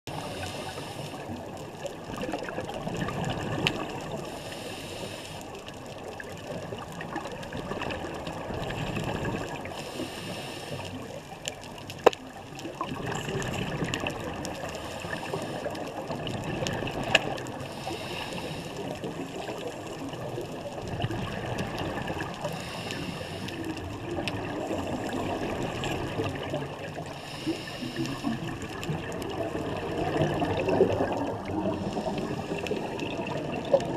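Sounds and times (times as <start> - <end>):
regulator hiss on inhale: 0.1 - 1.4, 4.2 - 5.6, 9.6 - 11.2, 14.6 - 16.0, 17.6 - 19.7, 22.4 - 23.8, 27.0 - 28.5, 31.7 - 33.0
gurgling exhaled bubbles: 0.1 - 4.5, 5.4 - 33.9.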